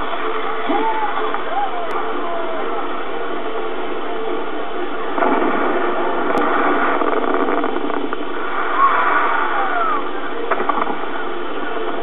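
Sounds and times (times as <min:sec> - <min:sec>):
fireworks crackling hiss: 0:05.1 - 0:12.0
firework falling whistle: 0:05.2 - 0:11.0.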